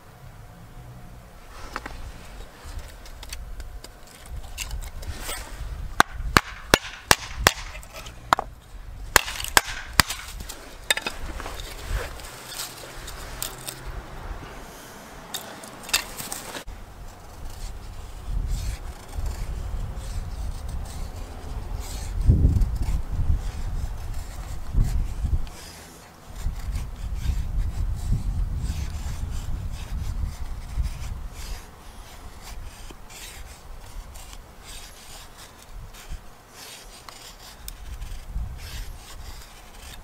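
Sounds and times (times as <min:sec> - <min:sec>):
wood scraping and rubbing: 0:01.4 - 0:40.0
sharp wooden knocks: 0:06.0 - 0:08.5, 0:09.1 - 0:10.3.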